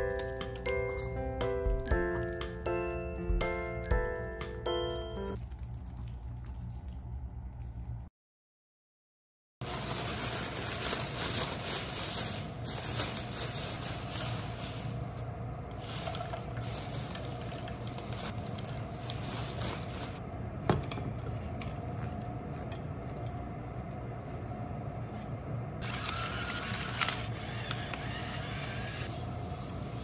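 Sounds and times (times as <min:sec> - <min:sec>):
low kitchen hum: 0:00.0 - 0:08.1, 0:09.6 - 0:30.0
plastic zipper bag crinkling: 0:09.6 - 0:15.0, 0:15.8 - 0:20.2.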